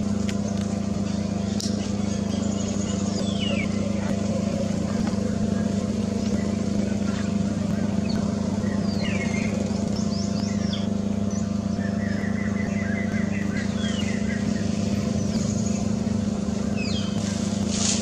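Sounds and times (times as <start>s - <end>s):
low motor drone: 0.0s - 18.0s
small birds chirping: 0.0s - 18.0s.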